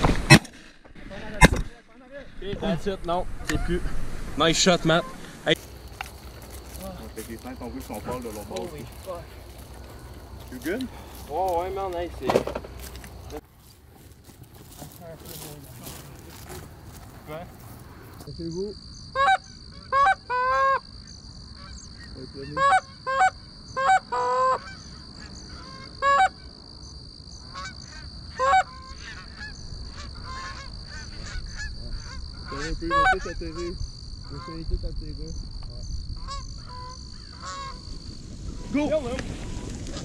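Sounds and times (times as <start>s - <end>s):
geese honking: 3.4s - 13.4s, 19.1s - 20.9s, 21.5s - 26.6s, 27.4s - 34.7s, 36.1s - 40.0s.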